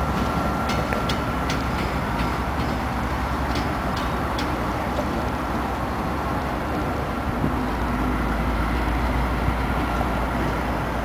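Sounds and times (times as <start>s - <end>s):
diesel locomotive rumbling: 0.0s - 11.0s.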